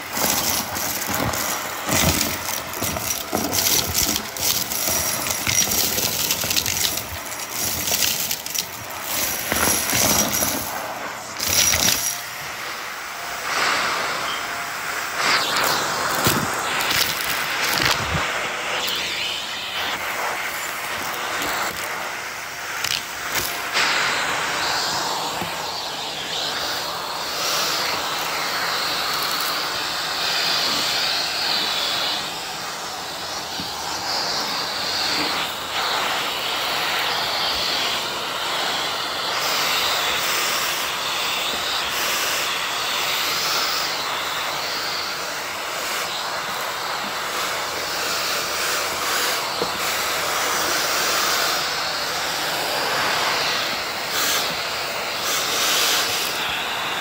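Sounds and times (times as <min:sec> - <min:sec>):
vacuum cleaner running: 0:00.0 - 0:57.0.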